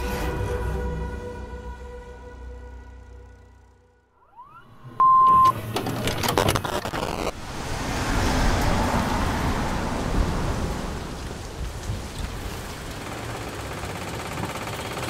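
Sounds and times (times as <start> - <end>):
short high beep: 4.2 - 5.6
crackling tape static: 5.1 - 7.4
heavy rain: 7.3 - 14.0.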